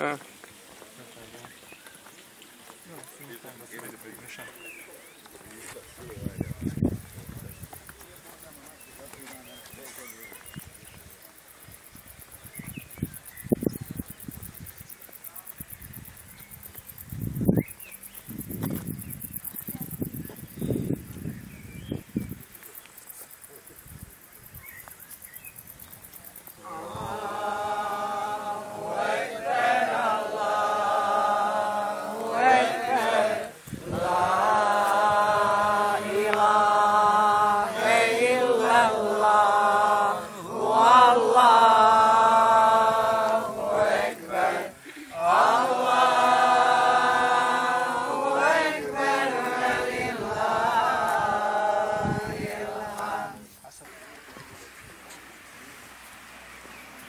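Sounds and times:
voices chanting a prayer: 2.6 - 17.2, 25.9 - 56.1.

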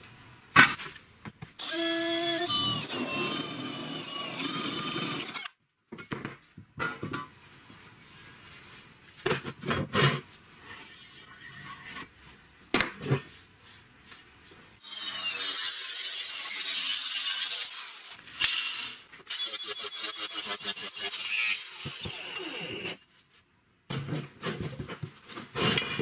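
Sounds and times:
angle grinder: 1.6 - 5.5, 14.8 - 23.0
power drill cutting steel: 1.6 - 5.6, 14.8 - 23.0.

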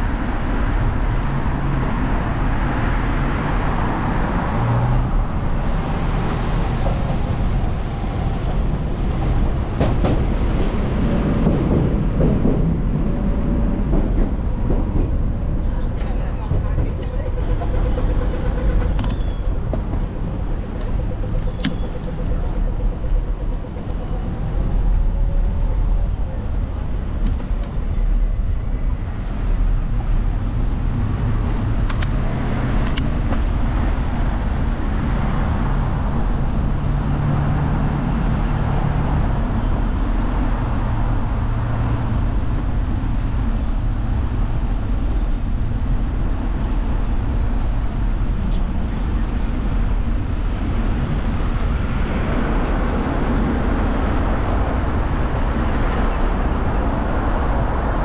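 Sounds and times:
car engines: 0.0 - 58.0
low engine hum: 0.0 - 58.0
tyres on the road: 0.0 - 58.0.

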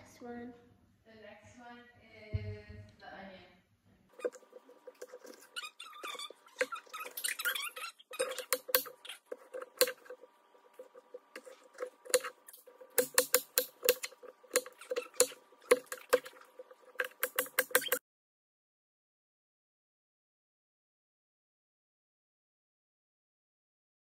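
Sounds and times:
knife chopping on wooden board: 11.4 - 16.4.

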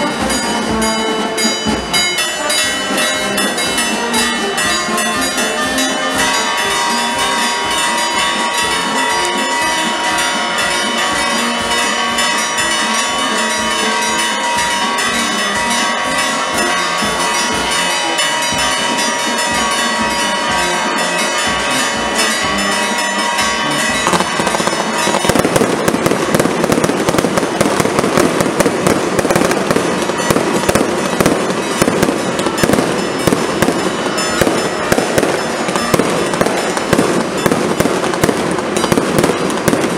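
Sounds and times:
firecrackers crackling: 0.0 - 39.9
long steady ringing tones: 0.0 - 39.9.

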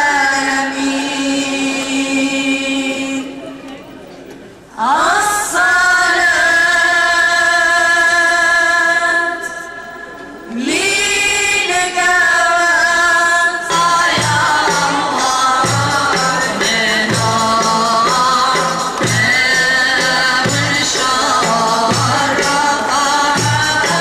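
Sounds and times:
woman singing a chant: 0.0 - 3.6, 4.7 - 9.9, 10.5 - 24.0
voices singing: 4.7 - 24.0
drum beats: 13.7 - 24.0.

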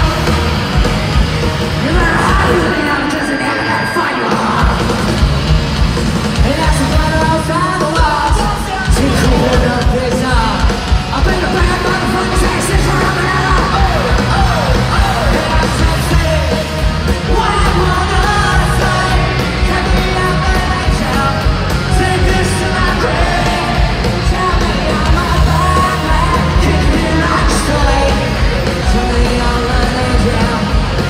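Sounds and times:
electric guitars: 0.0 - 31.0
fast drum beat: 0.0 - 31.0
punk rock band playing: 0.0 - 31.0
person singing: 6.4 - 31.0.

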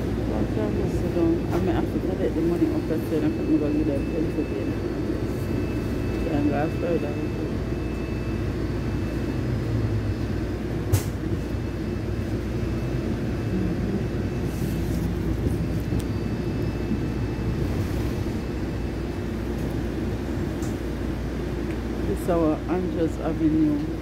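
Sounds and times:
vehicle rumble from inside: 5.0 - 21.3.

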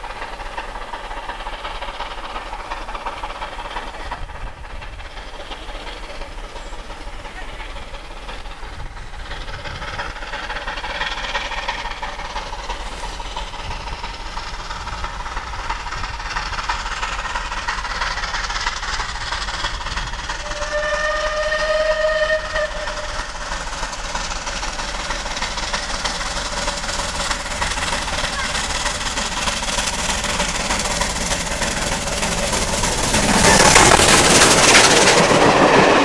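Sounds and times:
steam locomotive working: 0.0 - 36.0
steam whistle blast: 20.4 - 23.2.

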